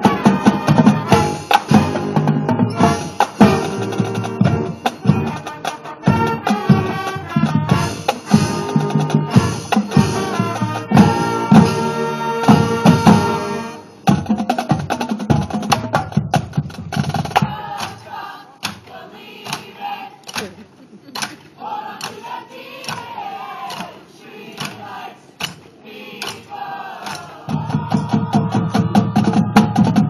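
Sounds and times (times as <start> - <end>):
drum strikes: 0.0 - 18.0, 27.0 - 30.0
marching band playing: 0.0 - 20.4, 21.2 - 30.0.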